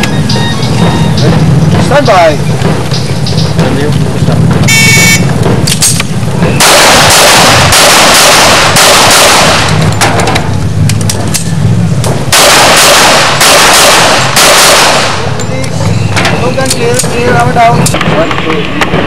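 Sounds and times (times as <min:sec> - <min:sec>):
handgun shots: 0:05.6 - 0:10.3, 0:12.3 - 0:15.3.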